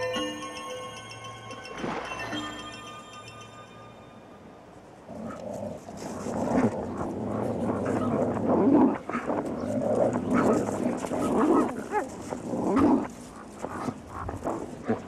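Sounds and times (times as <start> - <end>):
coyotes snarling and growling: 5.0 - 15.0.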